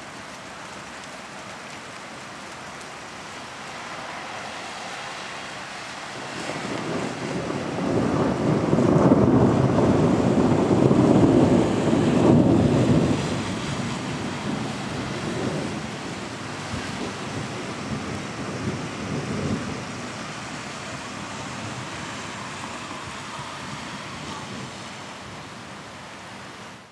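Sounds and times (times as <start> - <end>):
thunder rumbling: 6.0 - 25.5.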